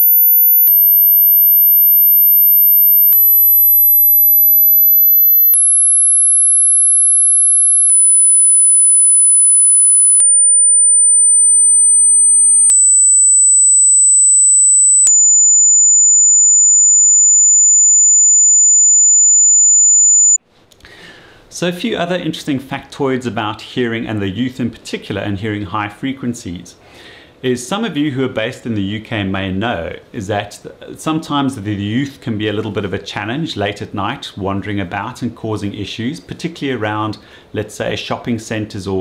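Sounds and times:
sine test tones: 0.0s - 20.4s.

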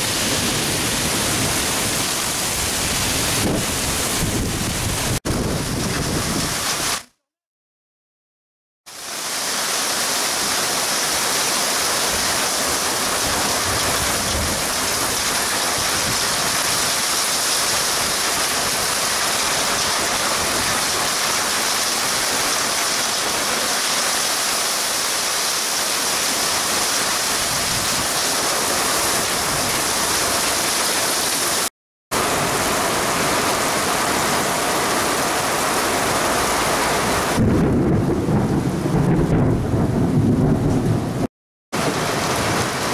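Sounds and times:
strong wind gusts: 0.0s - 7.0s, 12.1s - 17.0s, 27.3s - 30.5s, 32.2s - 42.9s
heavy rain hissing: 8.9s - 37.4s.

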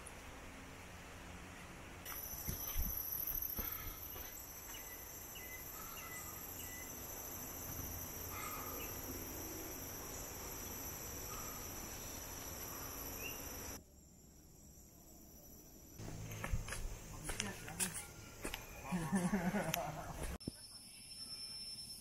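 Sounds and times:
insects droning: 2.0s - 22.0s
bird chirps: 2.1s - 13.8s.

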